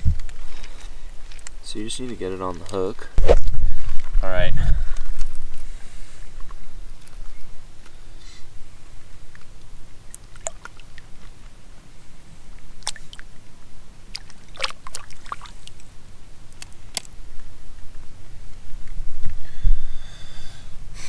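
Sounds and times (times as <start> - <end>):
light water splashes: 10.1 - 11.3, 12.6 - 13.4, 14.0 - 15.9.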